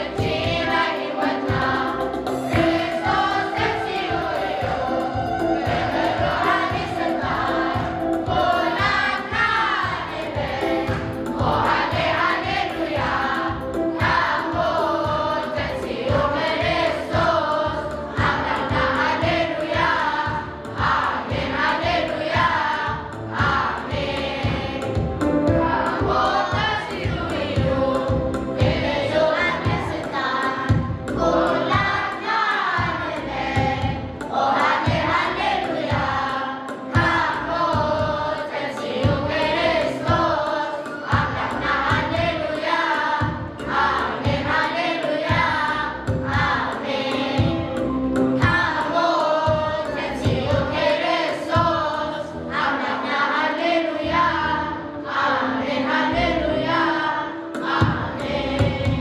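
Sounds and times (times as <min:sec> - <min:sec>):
steady low beat: 0:00.0 - 0:30.0
children's choir singing a hymn: 0:00.0 - 0:59.0.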